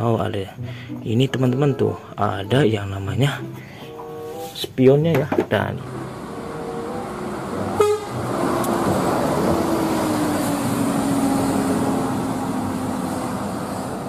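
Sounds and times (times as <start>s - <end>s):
road noise: 3.2s - 14.0s
bus engine driving past: 5.8s - 14.0s.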